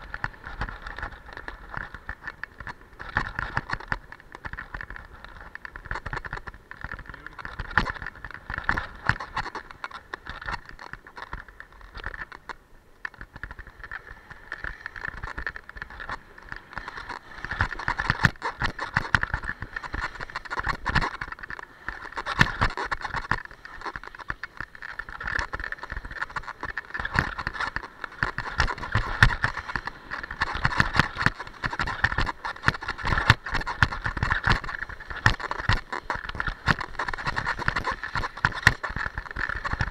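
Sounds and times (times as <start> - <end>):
sharp clicks and knocks: 0.0 - 39.9
skis scraping over hard snow: 13.6 - 39.9.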